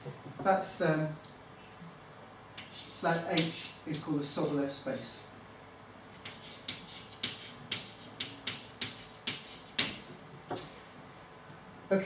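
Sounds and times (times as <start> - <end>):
chalk on blackboard: 2.6 - 5.2, 6.1 - 10.7.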